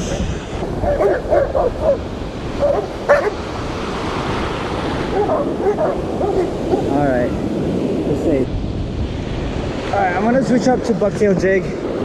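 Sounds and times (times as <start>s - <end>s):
dog barking and yipping: 0.8s - 2.0s, 2.6s - 3.4s, 5.1s - 6.9s.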